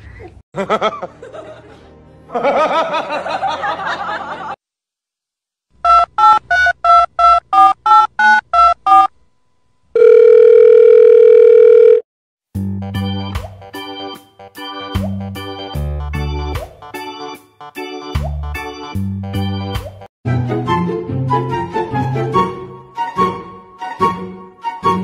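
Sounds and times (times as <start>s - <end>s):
steady telephone tone: 9.9s - 12.0s
organ-like music: 12.7s - 25.0s.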